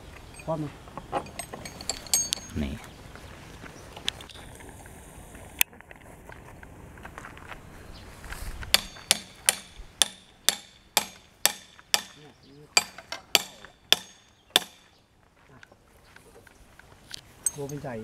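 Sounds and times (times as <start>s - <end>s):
hammer striking metal: 8.7s - 14.9s.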